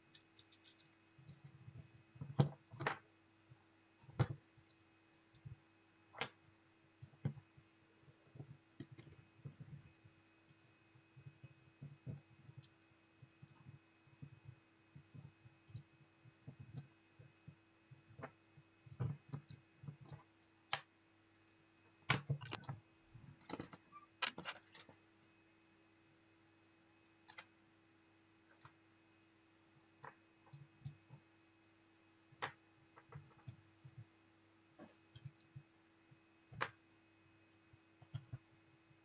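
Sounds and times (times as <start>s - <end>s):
light clicks and taps of parts: 0.0s - 1.5s
faint steady hum: 0.0s - 39.0s.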